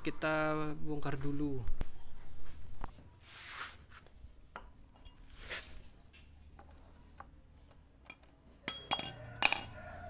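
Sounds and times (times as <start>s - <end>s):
soft rustle: 1.9s - 4.5s, 5.1s - 6.4s.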